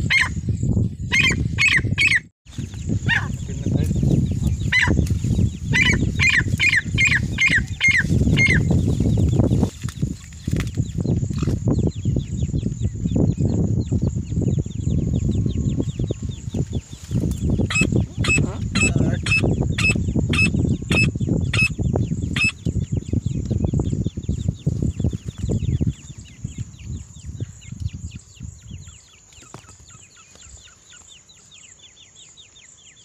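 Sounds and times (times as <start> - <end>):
francolin calling: 1.1 - 10.2, 11.0 - 24.6.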